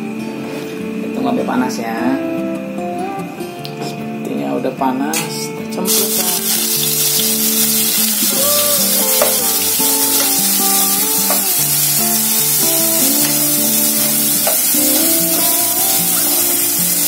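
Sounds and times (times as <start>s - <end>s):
background music with melody: 0.0s - 17.0s
paste sizzling in hot oil: 5.9s - 17.0s.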